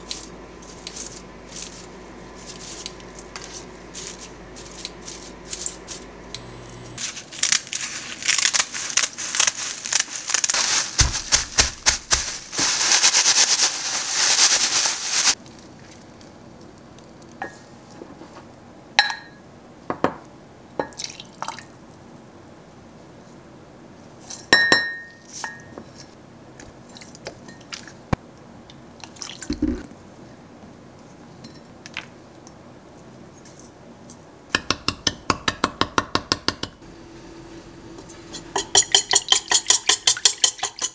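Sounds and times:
seaweed sheets crackling in pan: 7.0s - 15.4s.

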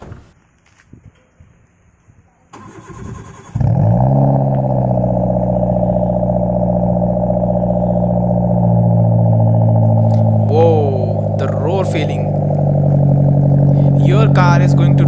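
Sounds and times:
car starter cranking: 2.5s - 5.6s, 8.2s - 15.0s
car engine idling loudly: 4.2s - 15.0s.

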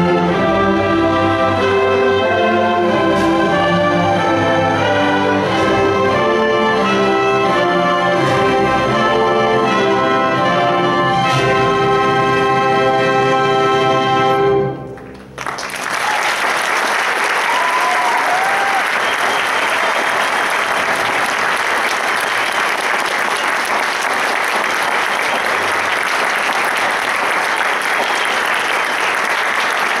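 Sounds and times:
orchestra chord: 0.0s - 15.3s
audience applause: 15.0s - 30.0s.

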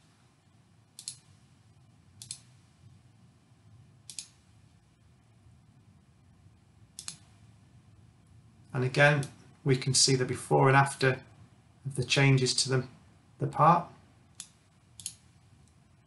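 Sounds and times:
computer mouse clicking: 1.0s - 1.3s, 2.2s - 2.5s, 4.1s - 4.4s, 7.0s - 7.3s, 14.3s - 15.8s.

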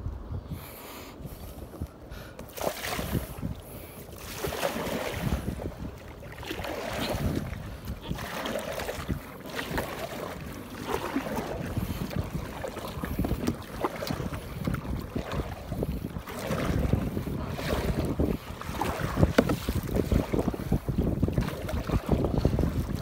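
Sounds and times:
wind buffeting microphone: 0.0s - 23.0s
paddle strokes splashing water: 2.3s - 23.0s.

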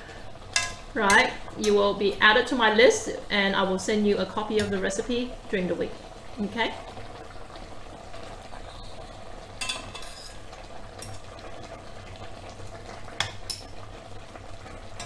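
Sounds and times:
spatula scraping a pan of sauce: 9.9s - 10.5s.

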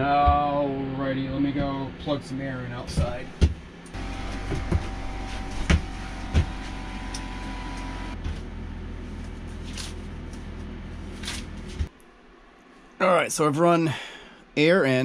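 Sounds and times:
air compressor humming: 0.0s - 11.9s.

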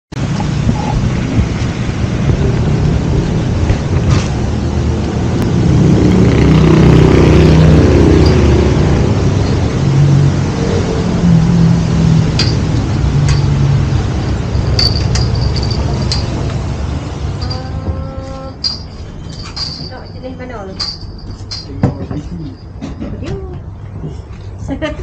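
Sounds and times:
vehicle engine rumbling: 0.1s - 25.0s.

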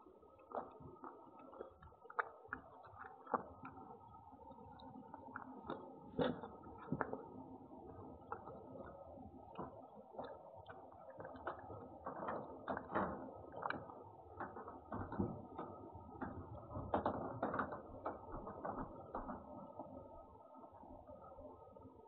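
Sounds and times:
cat chewing: 0.1s - 14.9s.

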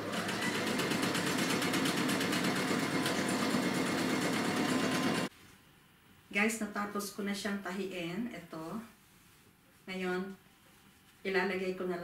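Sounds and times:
electric sewing machine stitching: 0.0s - 5.3s.

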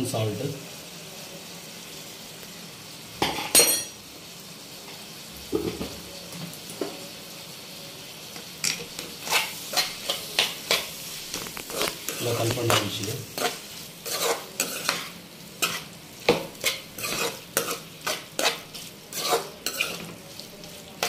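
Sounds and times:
faint sizzle: 0.0s - 21.0s
metal spoon clinking on pan: 3.3s - 3.9s
spoon scraping around pan: 8.4s - 21.0s.

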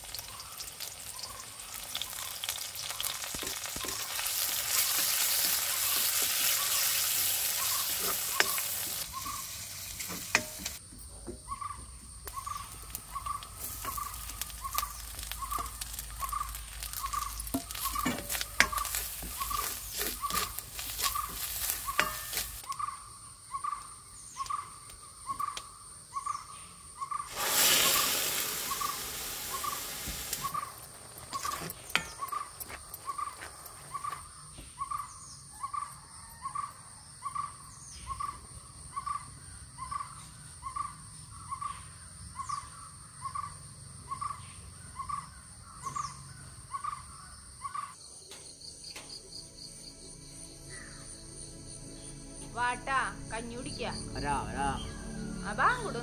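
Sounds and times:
food crackling in a wok: 0.0s - 10.8s, 12.2s - 22.9s, 27.3s - 34.2s
loud sizzle in a wok: 0.0s - 11.4s, 12.1s - 22.7s, 27.1s - 32.7s.

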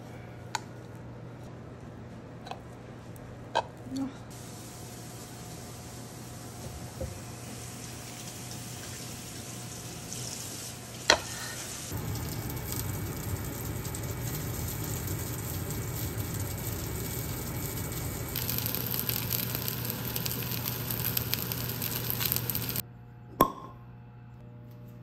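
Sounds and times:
steak sizzling in a pan: 4.4s - 22.8s
bottle opening pop: 23.4s - 23.8s.

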